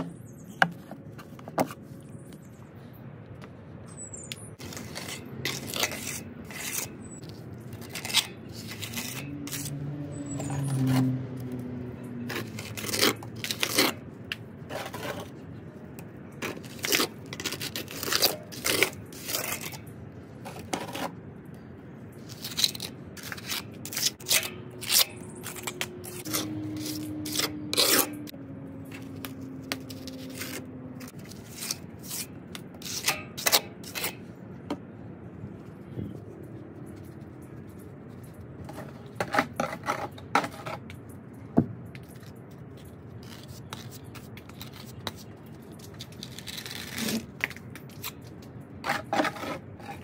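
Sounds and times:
trowel scraping plaster: 0:04.6 - 0:11.1, 0:12.2 - 0:14.0, 0:14.6 - 0:15.5, 0:16.4 - 0:21.2, 0:22.2 - 0:28.3, 0:29.2 - 0:34.3, 0:37.0 - 0:40.9, 0:42.1 - 0:48.2, 0:48.8 - 0:50.0.

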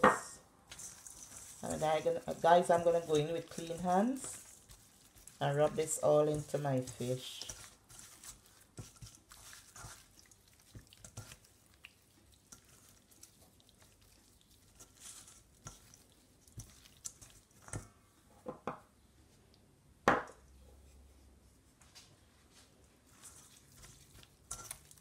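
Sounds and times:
soft wet squishing: 0:00.5 - 0:18.4, 0:20.4 - 0:25.0.

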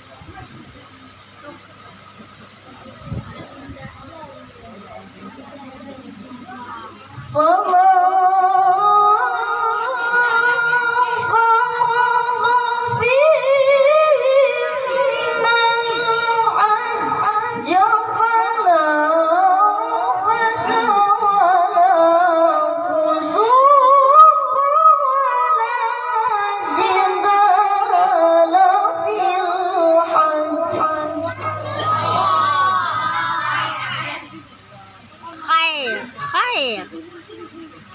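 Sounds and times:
boy reciting melodically: 0:05.8 - 0:34.4.

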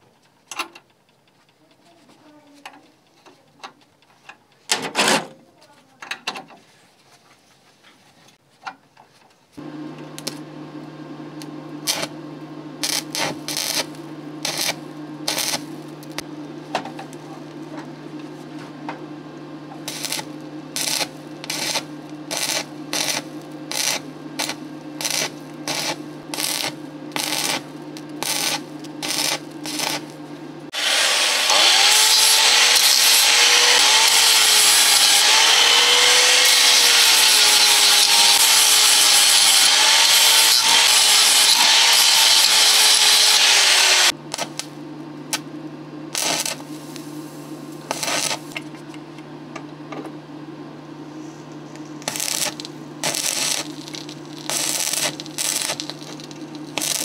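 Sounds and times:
welding arc crackle: 0:09.6 - 0:17.8, 0:19.7 - 0:45.5, 0:46.1 - 0:48.7, 0:51.7 - 0:57.0
low hum: 0:09.6 - 0:30.8
angle grinder grinding steel: 0:11.4 - 0:16.3, 0:19.6 - 0:44.6, 0:46.2 - 0:47.1, 0:47.8 - 0:48.6, 0:52.0 - 0:57.0.

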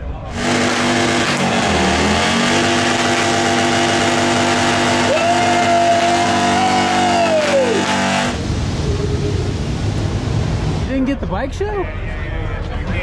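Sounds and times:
high whine: 0:00.0 - 0:11.2
motorcycle engine at high revs: 0:00.3 - 0:08.4.

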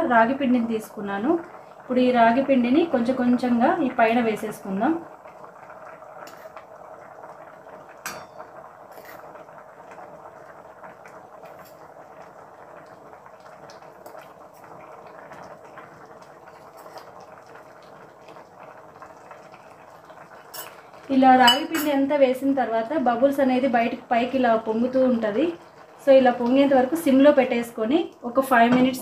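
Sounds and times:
rice pot bubbling: 0:00.0 - 0:29.0
steel spoon clinking: 0:08.1 - 0:08.4.

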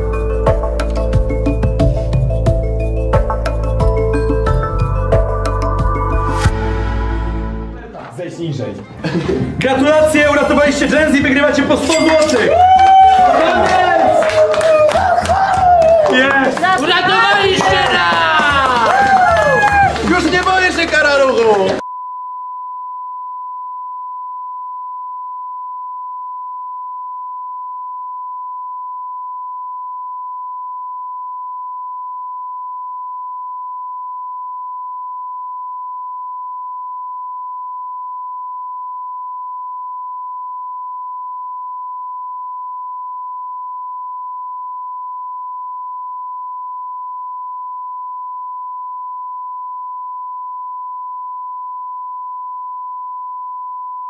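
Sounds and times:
steady test tone beep: 0:21.8 - 0:54.0.

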